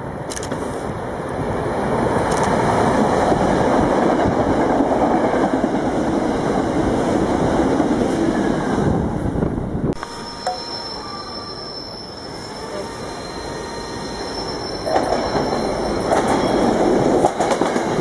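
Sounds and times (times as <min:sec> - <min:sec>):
electric train passing at speed: 0:00.0 - 0:18.0
wheels rumbling on rail: 0:00.0 - 0:18.0
faint high tones: 0:10.0 - 0:16.7.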